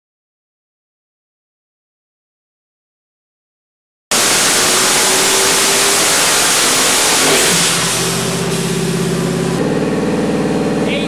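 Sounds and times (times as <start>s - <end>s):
engine running on a dyno: 4.1s - 11.0s.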